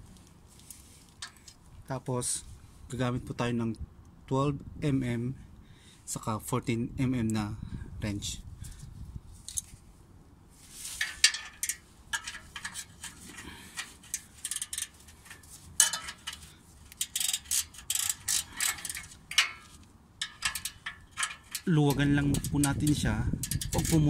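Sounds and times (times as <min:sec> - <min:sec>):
ratcheting wrench clicking: 0:11.0 - 0:24.0
steel wrenches clinking on bolt: 0:11.0 - 0:24.0.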